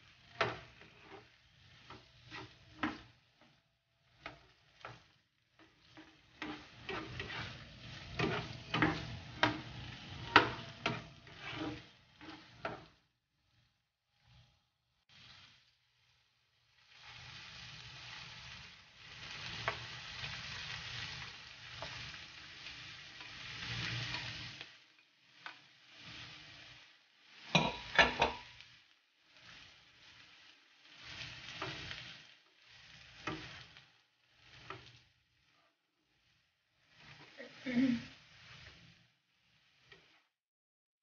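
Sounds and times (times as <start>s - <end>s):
food sizzling in oil: 0.0s - 40.4s
spatula clacking on pan: 0.3s - 13.0s, 27.4s - 28.6s, 33.0s - 33.8s.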